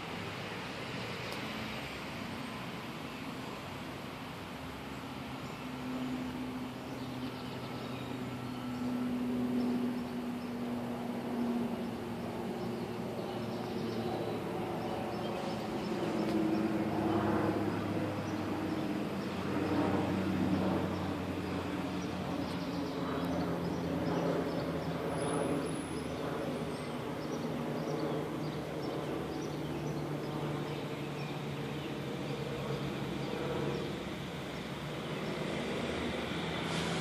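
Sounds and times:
low engine hum: 0.0 - 37.0.

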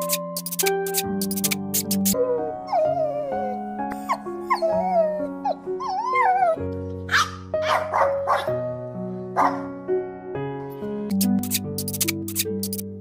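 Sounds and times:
background music sustained notes: 0.0 - 13.0
dog whining and yipping: 1.8 - 7.4
dog barking: 7.1 - 8.6, 9.4 - 9.7.

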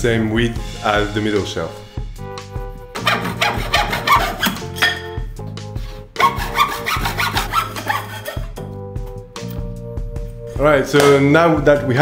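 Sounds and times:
hand saw cutting wood: 3.0 - 5.0, 6.2 - 8.6.

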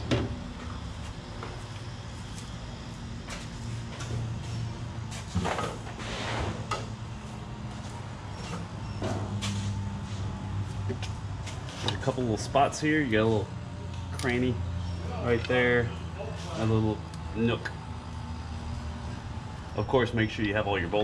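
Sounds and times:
low hum of repair shop: 0.0 - 21.0
sliding scraping noises: 3.4 - 6.8.

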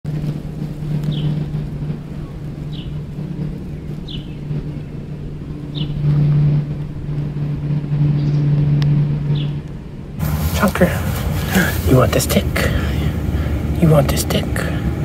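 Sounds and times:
low motor hum: 0.1 - 15.0
high bird chirp: 2.2 - 6.1.

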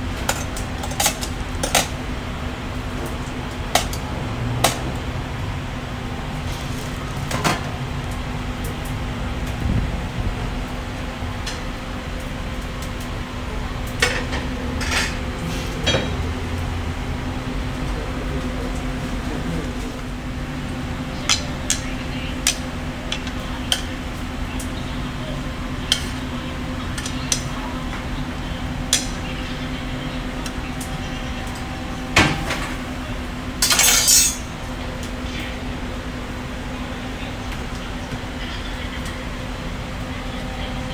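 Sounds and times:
steady mechanical hum: 0.0 - 40.9
metal tongs clinking on steel: 33.6 - 34.5.

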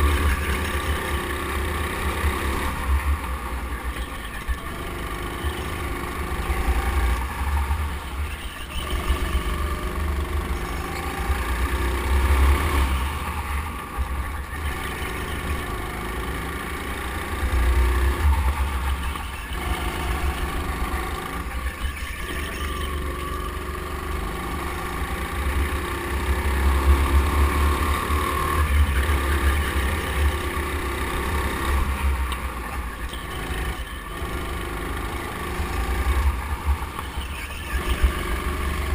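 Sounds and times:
go-kart motor revving: 0.0 - 38.9.

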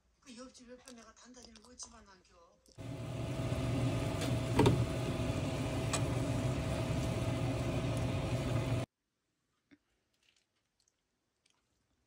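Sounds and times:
motor humming with low drone: 2.8 - 8.9.

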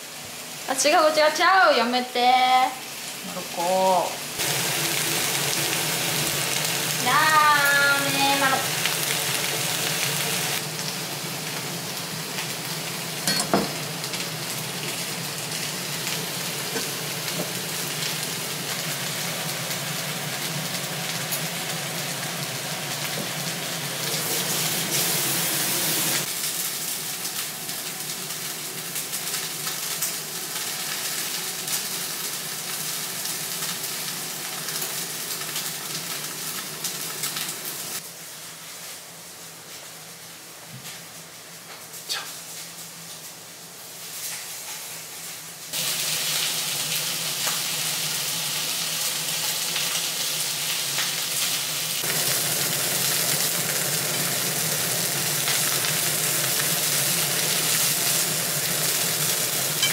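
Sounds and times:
food sizzling in a frying pan: 0.0 - 59.9.

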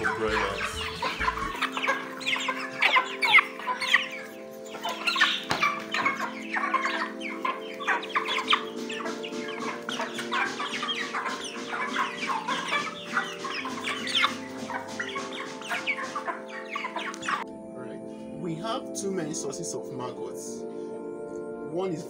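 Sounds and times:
chickens clucking: 0.0 - 17.5
background music: 0.0 - 22.0.

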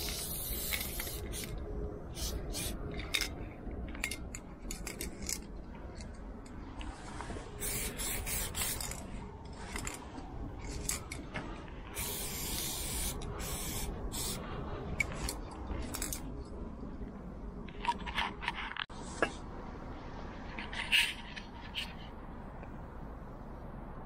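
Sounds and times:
spray paint can hissing: 0.0 - 2.8, 7.6 - 9.0, 12.0 - 14.4.

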